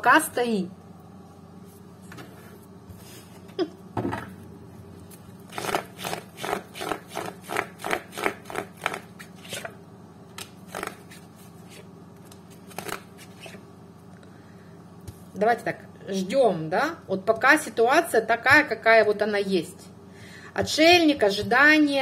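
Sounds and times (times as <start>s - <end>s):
cards being shuffled: 10.4s - 13.6s.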